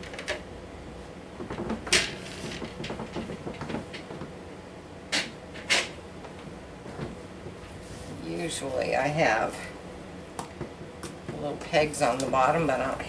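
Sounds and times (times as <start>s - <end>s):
sharp knocks: 1.4s - 4.3s.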